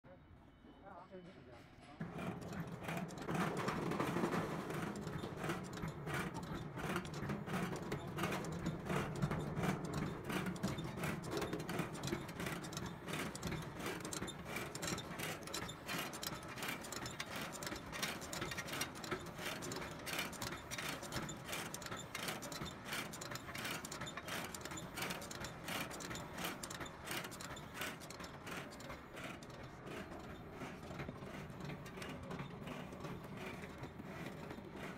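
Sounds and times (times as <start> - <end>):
machine clattering rapidly: 2.0 - 34.9.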